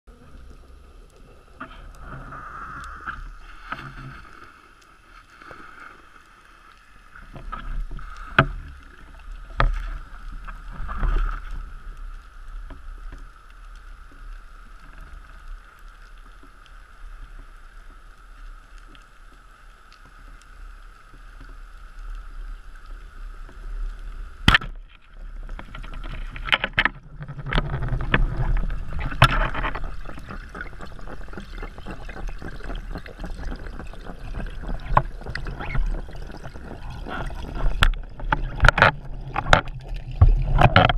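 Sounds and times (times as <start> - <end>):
underwater hum and rumble: 0.0 - 40.9
sharp clicks and knocks: 24.5 - 33.6.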